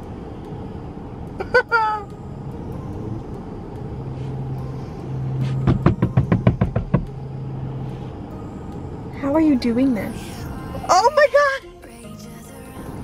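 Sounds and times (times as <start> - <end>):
car cabin engine hum: 0.0 - 13.0
rapid sharp knocks: 5.6 - 7.1.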